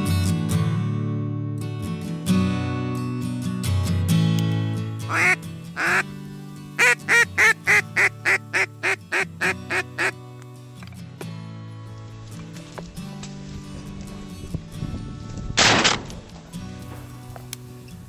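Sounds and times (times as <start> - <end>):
background music: 0.0 - 18.0
duck call quacking: 5.1 - 6.1, 6.8 - 10.2.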